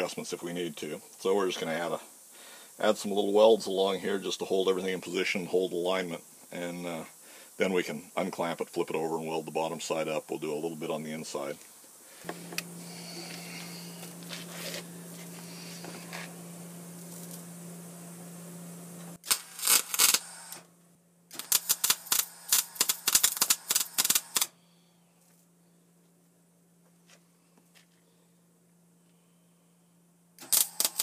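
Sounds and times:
welder humming: 0.0s - 20.7s, 21.3s - 24.6s, 30.4s - 31.0s
welding arc crackling: 12.4s - 17.6s, 19.1s - 20.6s, 21.3s - 24.5s, 30.4s - 31.0s.

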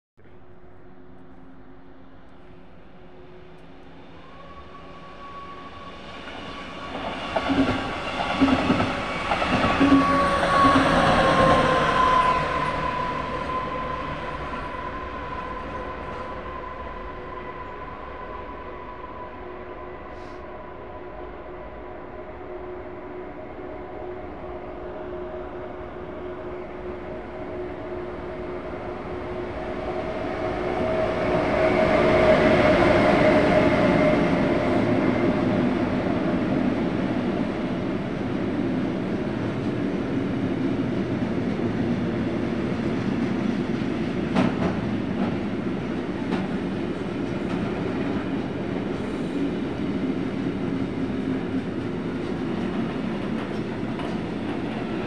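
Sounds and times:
train wheels rumbling: 4.6s - 18.8s, 27.2s - 55.0s.

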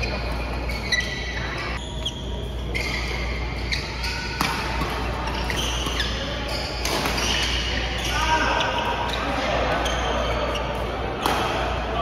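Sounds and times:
shoes squeaking on court: 0.0s - 11.0s
low hum of hall: 0.0s - 12.0s
racket hitting shuttlecock: 4.2s - 7.7s, 11.2s - 11.7s.

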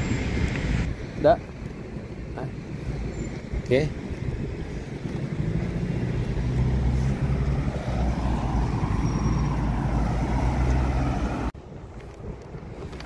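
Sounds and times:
low traffic rumble: 0.0s - 13.0s
car driving past: 5.2s - 11.5s.

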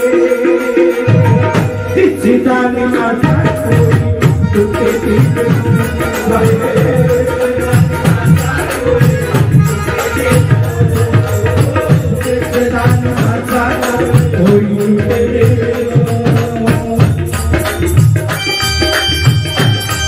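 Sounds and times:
hand drums: 0.0s - 20.0s
jingling percussion: 0.0s - 20.0s
electronic keyboard melody: 17.5s - 20.0s.

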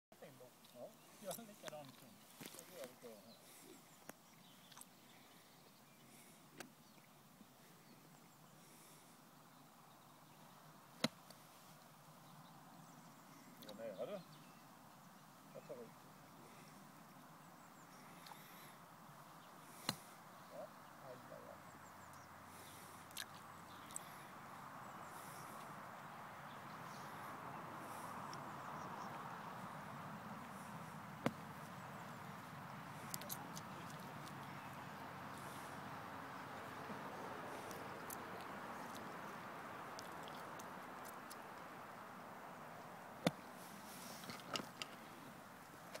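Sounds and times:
steady background hiss: 0.2s - 46.0s
faint bird chirps: 12.1s - 41.5s.

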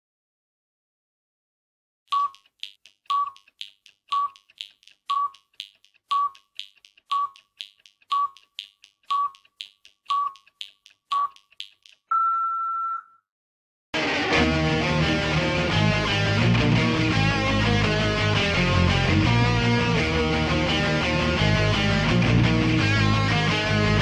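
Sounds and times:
held higher beep: 2.1s - 13.2s
short countdown beeps: 2.1s - 13.2s
guitar rock music: 14.0s - 24.0s.

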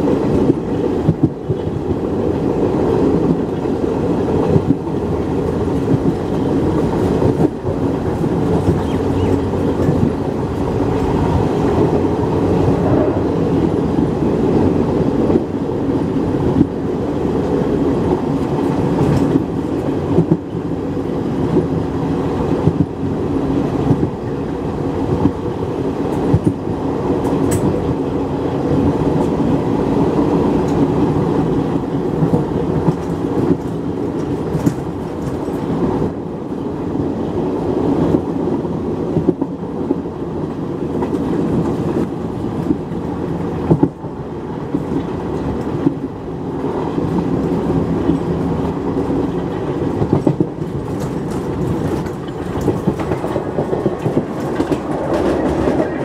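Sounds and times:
train wheels rumbling on rail: 0.0s - 56.0s
wheels clattering over rail joints: 30.6s - 36.7s, 40.7s - 56.0s.

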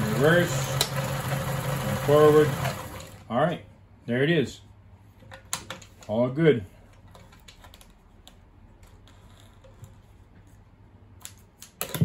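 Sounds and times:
sewing machine clicks: 0.1s - 3.2s.

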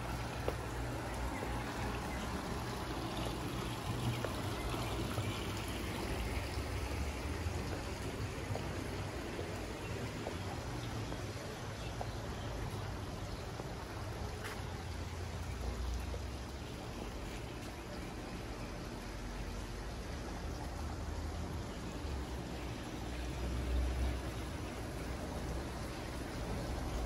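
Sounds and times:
fountain trickling and splashing: 0.0s - 27.0s.

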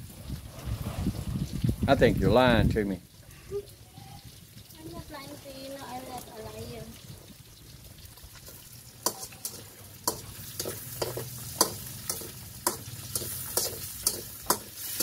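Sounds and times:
meat sizzling in pan: 3.5s - 15.0s
spatula knocking against wok: 9.0s - 15.0s.

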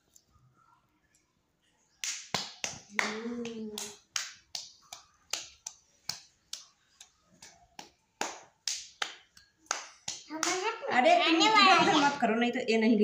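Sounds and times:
child clapping hands: 2.0s - 10.8s.

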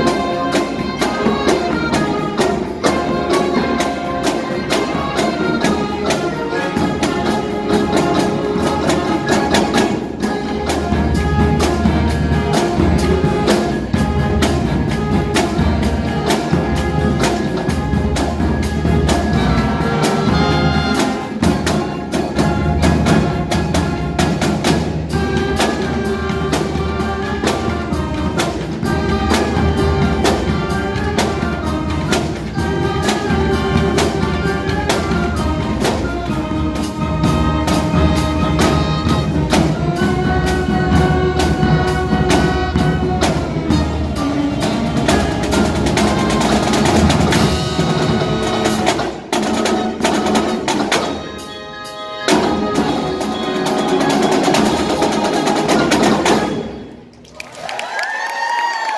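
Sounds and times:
bass drums: 0.0s - 51.4s
saxophones and brass: 0.0s - 57.1s
snare drums: 0.0s - 57.2s
congas: 0.0s - 58.9s.

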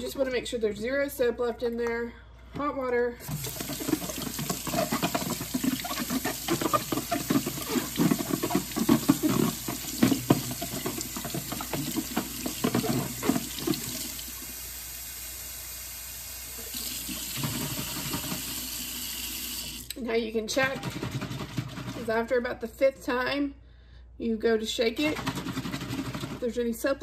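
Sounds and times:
faucet water running into sink: 3.2s - 19.9s.

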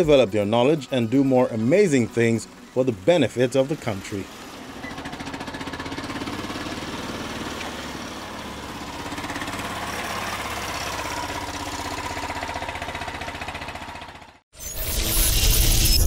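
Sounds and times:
small car engine running: 0.0s - 14.4s.

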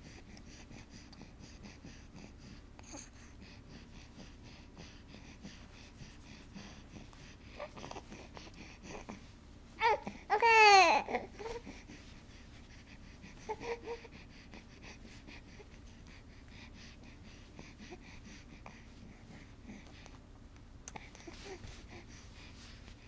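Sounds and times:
baby cooing: 9.8s - 11.6s.

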